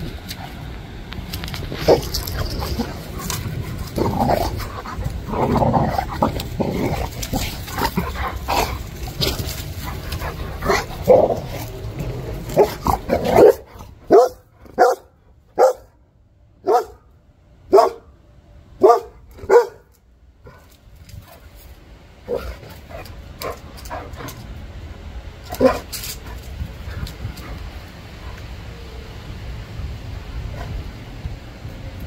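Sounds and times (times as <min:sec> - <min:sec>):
dog barking: 0:12.6 - 0:15.9, 0:16.6 - 0:17.1, 0:17.7 - 0:18.1, 0:18.8 - 0:19.9.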